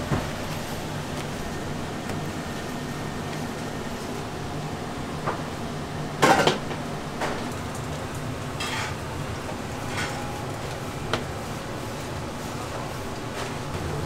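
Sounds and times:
dishes and utensils clattering: 8.6 - 9.0, 9.8 - 10.4.

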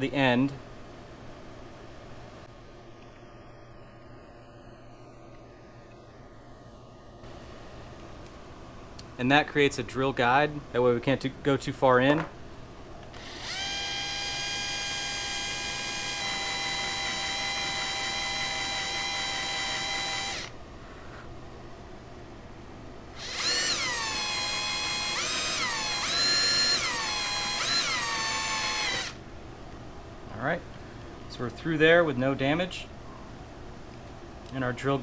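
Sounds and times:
cordless drill whining: 13.1 - 20.6, 23.2 - 29.2.

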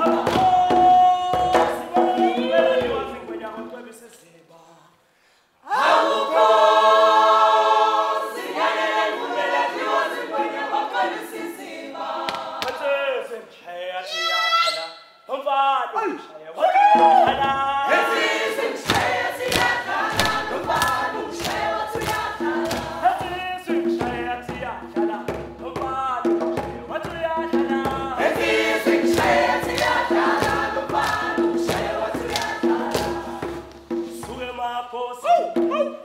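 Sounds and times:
choir singing: 0.0 - 3.2, 5.6 - 13.2, 17.4 - 23.3, 27.5 - 34.3
steady beat: 17.0 - 35.0.

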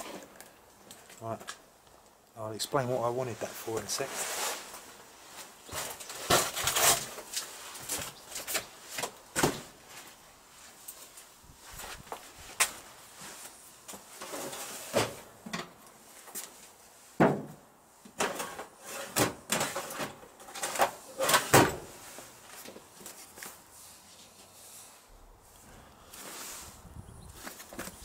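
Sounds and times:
rustling: 3.3 - 15.2, 18.4 - 28.0.

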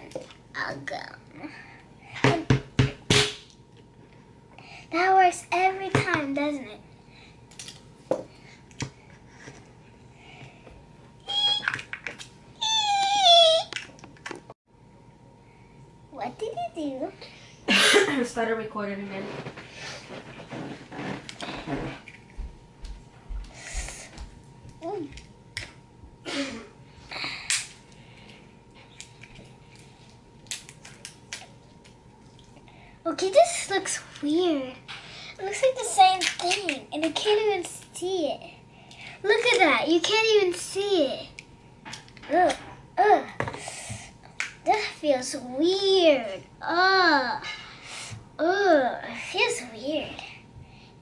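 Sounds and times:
high-pitched meow-like call: 12.6 - 13.6
rustling scrapes: 19.0 - 22.1.

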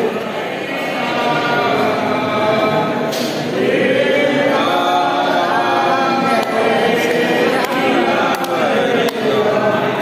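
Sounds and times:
men chanting in unison: 0.0 - 10.0.

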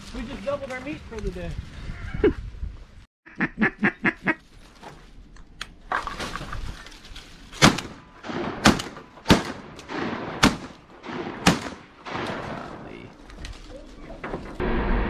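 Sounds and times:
duck quacking: 3.3 - 4.4
sharp loud cracks: 7.6 - 13.0.

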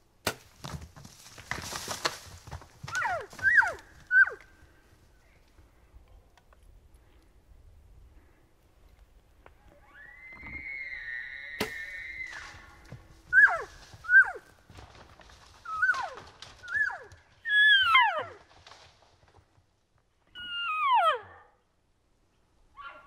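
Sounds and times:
elk bugling: 2.8 - 4.9, 9.6 - 14.6.

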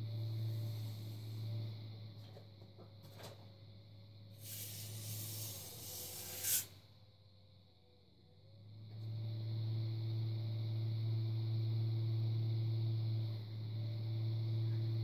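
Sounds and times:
pottery wheel motor humming: 0.0 - 15.0
hiss ending in sharp peak: 4.4 - 6.8.

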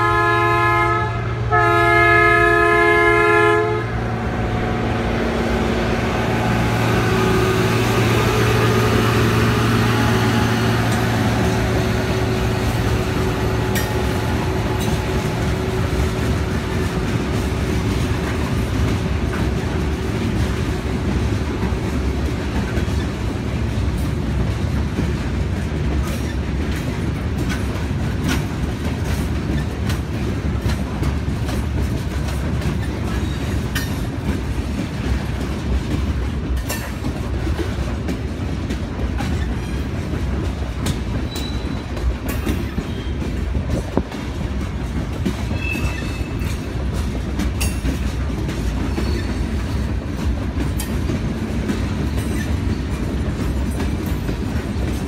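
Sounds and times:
train horn chord: 0.0 - 18.5
locomotive engine droning: 0.0 - 55.0
train cars rumbling: 0.0 - 55.0
train wheel clicks: 6.2 - 55.0.

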